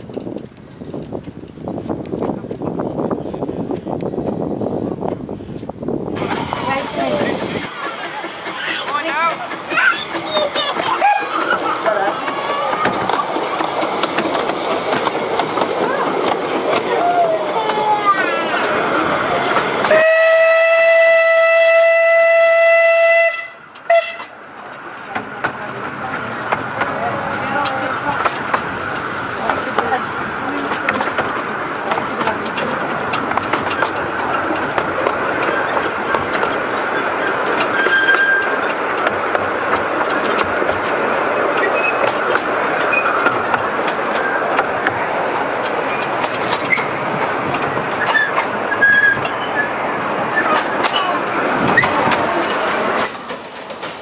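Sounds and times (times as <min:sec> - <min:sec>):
wheels squeaking: 0:00.0 - 0:20.0, 0:23.7 - 0:54.0
train rumble: 0:00.0 - 0:54.0
wheels clicking over rail joints: 0:00.0 - 0:54.0
steam locomotive whistle: 0:19.9 - 0:24.3.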